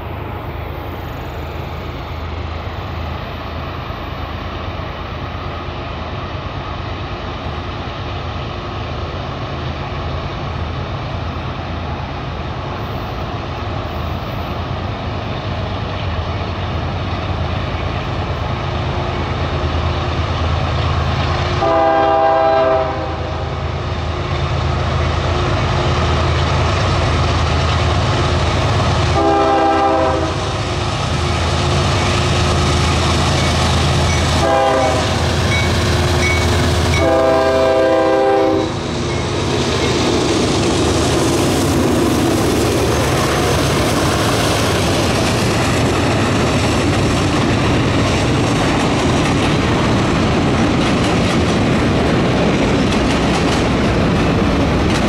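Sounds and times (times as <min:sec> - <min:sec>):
locomotive diesel engines rumbling: 0:00.0 - 0:55.0
locomotive horn blasts: 0:21.6 - 0:23.5, 0:29.2 - 0:30.5, 0:34.4 - 0:38.8
freight cars rumbling and clattering: 0:38.7 - 0:55.0.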